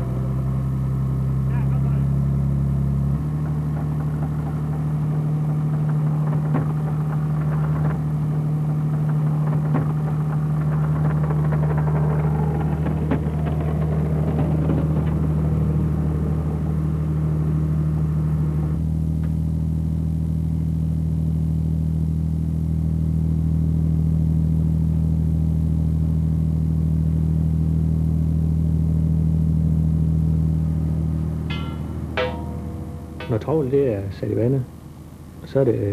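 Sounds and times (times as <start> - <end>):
boat diesel engine humming: 0.0 - 19.2, 28.8 - 35.9.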